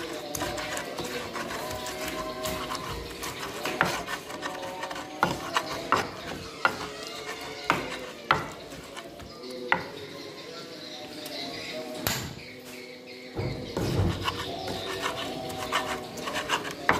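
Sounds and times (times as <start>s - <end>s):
stone pestle grinding in mortar: 0.0s - 9.9s, 13.9s - 16.9s.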